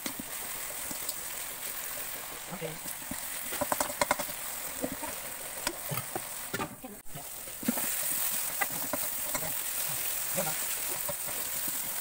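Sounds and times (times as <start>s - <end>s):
vegetables sizzling in a wok: 0.0s - 12.0s
metal spoon scraping a pan: 7.6s - 12.0s.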